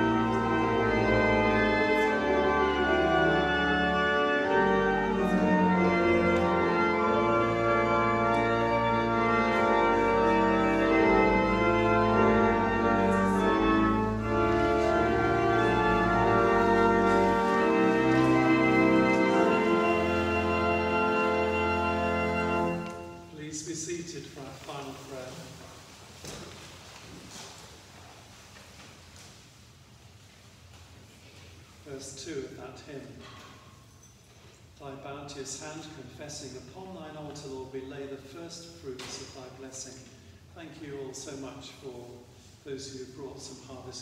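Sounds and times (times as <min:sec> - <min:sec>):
church organ playing chords: 0:00.0 - 0:25.2.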